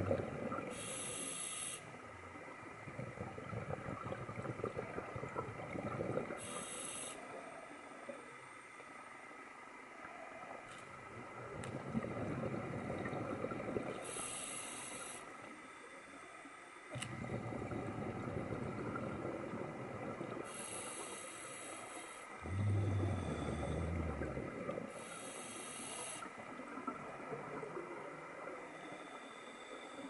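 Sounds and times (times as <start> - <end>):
exhaled bubbles rumbling: 0.0 - 0.8, 2.0 - 6.5, 10.1 - 14.2, 17.0 - 20.8, 22.4 - 25.1, 26.4 - 28.7
regulator hissing inhalations: 0.7 - 2.0, 6.4 - 7.4, 14.0 - 15.4, 20.4 - 22.4, 24.9 - 26.3.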